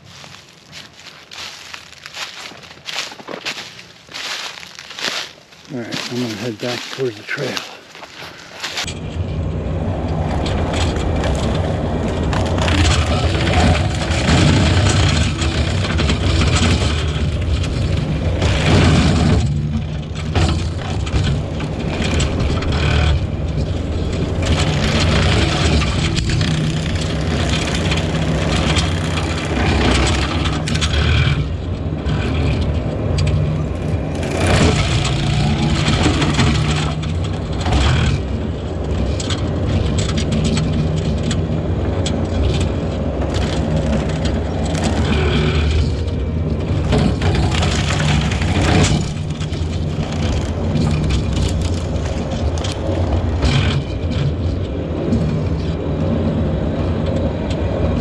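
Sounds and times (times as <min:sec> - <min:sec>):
brush cutter shredding brush: 0:00.0 - 0:08.9, 0:10.8 - 0:38.4
diesel engine running hard: 0:00.0 - 0:58.0
wood cracking and splintering: 0:00.2 - 0:08.9, 0:10.0 - 0:55.6.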